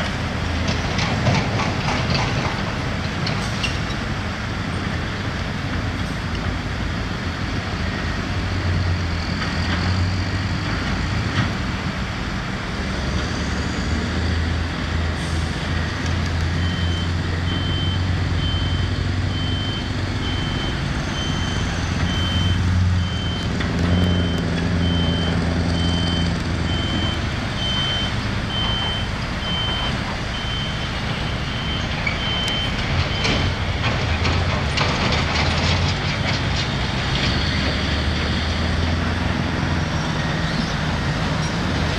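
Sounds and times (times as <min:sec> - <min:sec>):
diesel engine drone: 0:00.0 - 0:41.9
reversing alarm beeping: 0:13.4 - 0:34.0.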